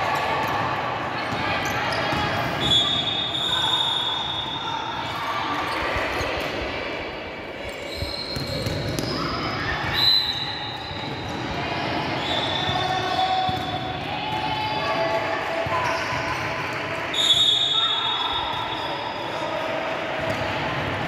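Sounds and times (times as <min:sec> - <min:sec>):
basketball bouncing on court floor: 0:08.3 - 0:09.2, 0:13.4 - 0:14.7.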